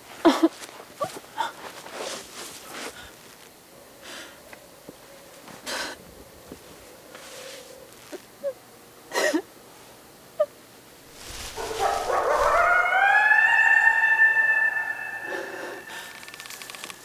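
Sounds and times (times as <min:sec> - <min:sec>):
coyote-like howl: 0:11.5 - 0:16.4.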